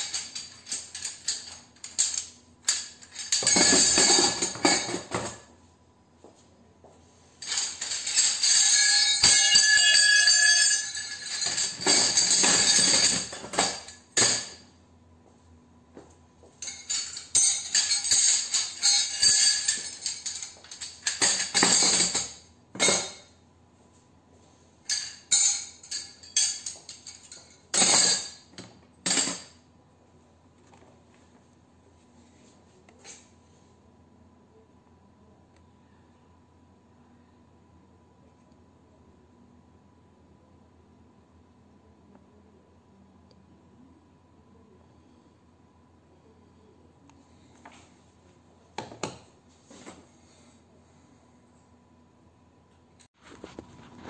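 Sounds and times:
scrap metal clattering into bucket: 0.0s - 5.5s, 7.4s - 14.6s, 16.6s - 23.2s, 24.9s - 29.5s.

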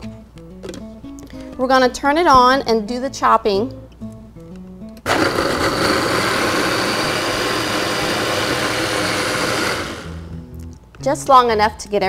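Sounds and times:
blender running: 5.1s - 10.2s.

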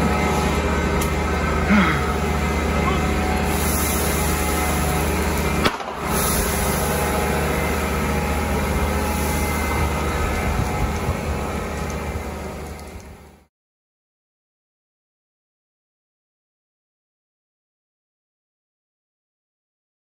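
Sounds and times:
fire engine pump droning: 0.0s - 13.5s
water jet hissing: 3.0s - 13.0s
sharp pop: 5.6s - 6.0s.

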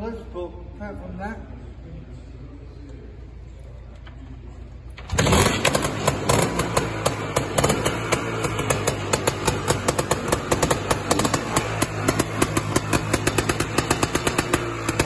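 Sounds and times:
motorcycle kickstart: 4.9s - 15.0s
two-stroke motorcycle engine popping: 5.0s - 15.0s.

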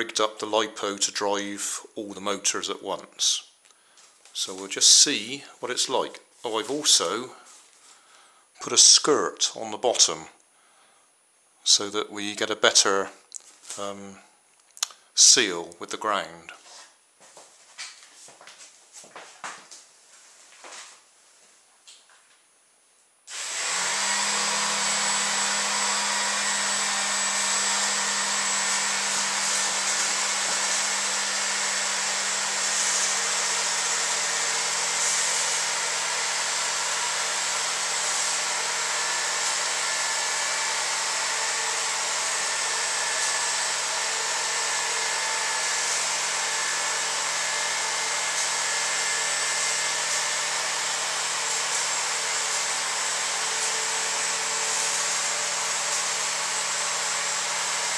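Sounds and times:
small motors and fans whirring: 23.3s - 57.9s.

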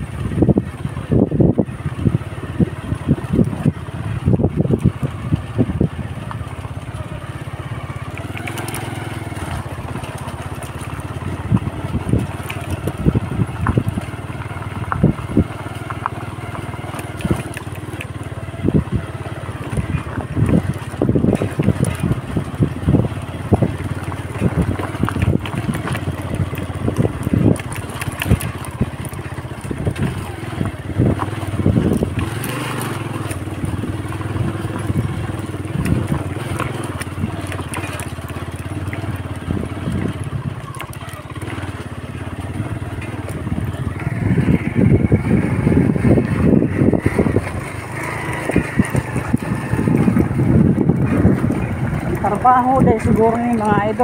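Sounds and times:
motorcycle running on gravel road: 0.0s - 54.0s
jolts and rattles over stones: 1.7s - 54.0s.

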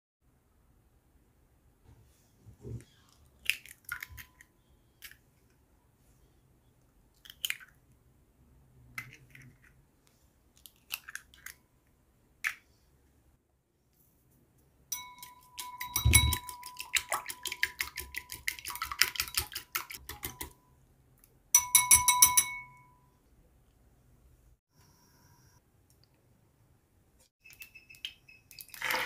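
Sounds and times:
eggs tapped on a ceramic bowl: 15.0s - 20.6s.

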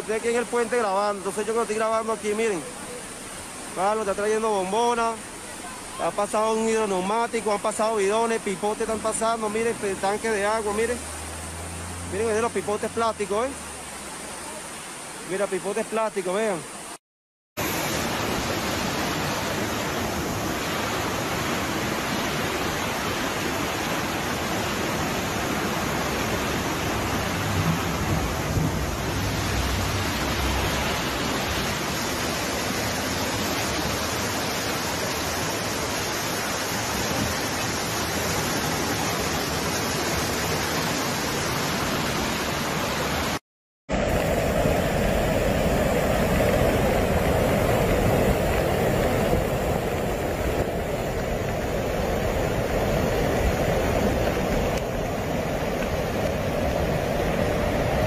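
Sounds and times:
floodwater rushing: 0.0s - 17.0s, 17.6s - 58.0s.

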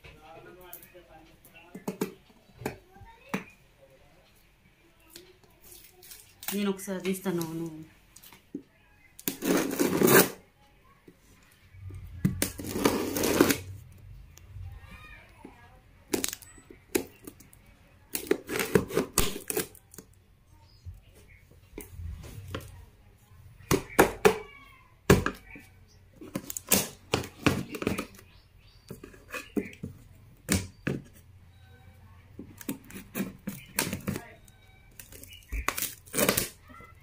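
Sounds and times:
packing tape crackling and snapping: 16.1s - 17.5s, 18.1s - 20.1s, 26.2s - 28.2s, 32.6s - 37.0s.

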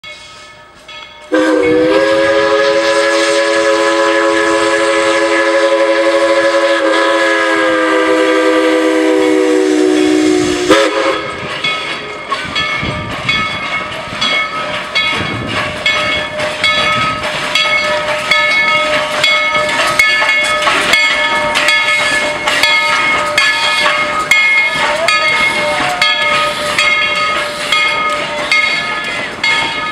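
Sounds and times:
locomotive bell ringing: 0.0s - 3.0s, 9.9s - 29.9s
steam locomotive chime whistle: 0.0s - 29.9s.

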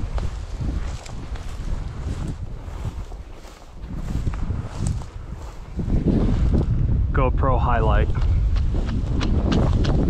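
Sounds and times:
footsteps through dry grass: 0.0s - 6.8s
wind buffeting microphone: 0.0s - 10.0s.

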